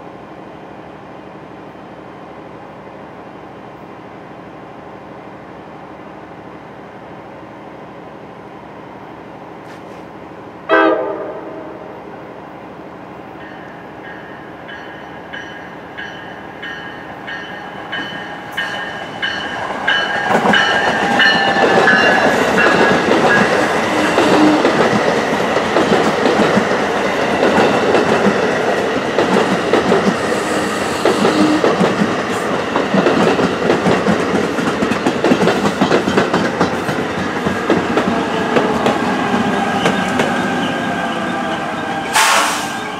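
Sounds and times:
train passing in a loud rush: 0:00.0 - 0:42.9
train horn blast: 0:10.7 - 0:12.0, 0:30.5 - 0:31.8, 0:42.1 - 0:42.8.

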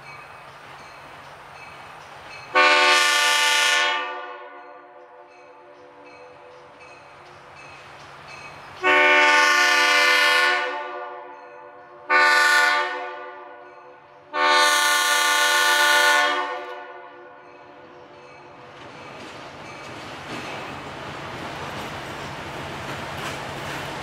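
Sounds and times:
locomotive air horn blasts: 0:02.6 - 0:06.2, 0:08.8 - 0:11.4, 0:12.0 - 0:13.7, 0:14.3 - 0:17.4.

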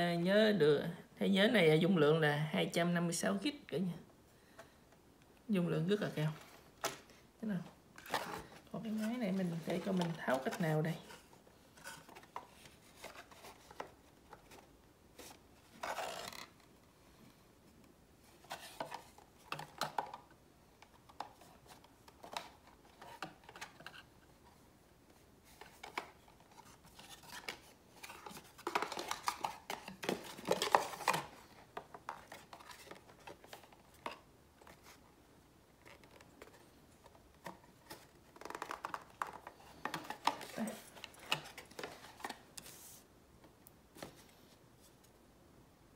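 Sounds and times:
camera and plastic packaging handled: 0:06.3 - 0:07.1, 0:08.0 - 0:16.7, 0:18.3 - 0:24.5, 0:25.4 - 0:35.1, 0:35.7 - 0:43.0.

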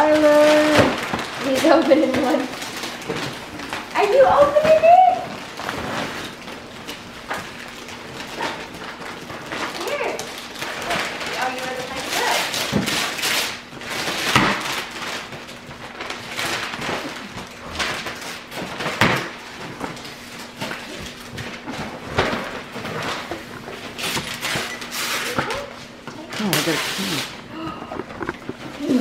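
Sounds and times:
gift wrap rustling and tearing: 0:00.0 - 0:29.0.

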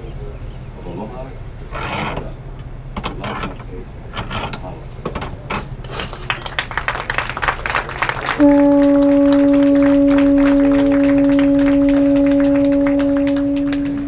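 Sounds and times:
conch shell trumpet low note: 0:08.3 - 0:14.0.

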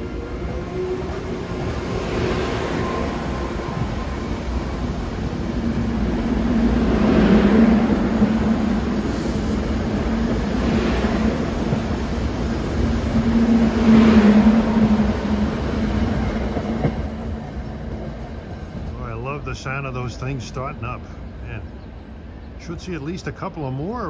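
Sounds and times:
train coaches rumbling past: 0:00.0 - 0:24.0.

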